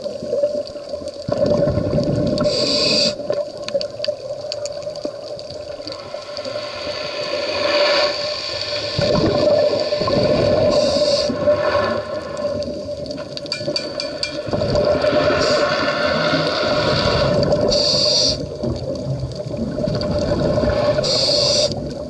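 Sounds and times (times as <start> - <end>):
exhaled bubbles rumbling: 0.0 - 22.0
regulator inhale hiss: 2.4 - 3.3, 9.7 - 12.4, 15.1 - 18.6, 20.7 - 22.0.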